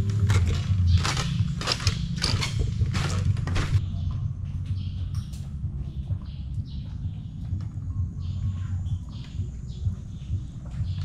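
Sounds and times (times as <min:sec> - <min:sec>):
footsteps creaking on boardwalk: 0:00.0 - 0:03.8
steady low rumble: 0:00.0 - 0:11.0.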